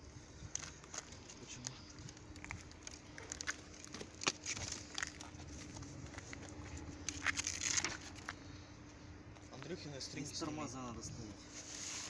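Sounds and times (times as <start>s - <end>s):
plastic and cardboard rustling: 0.5s - 8.4s, 11.5s - 12.0s.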